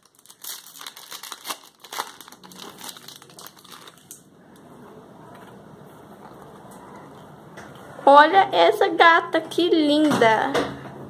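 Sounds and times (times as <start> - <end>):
foil wrapper crinkling: 0.0 - 4.3.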